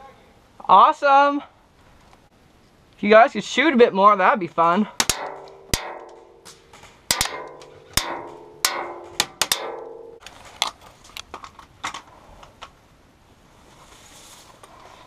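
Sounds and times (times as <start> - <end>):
pellets knocking on wood and metal: 5.0 - 10.3.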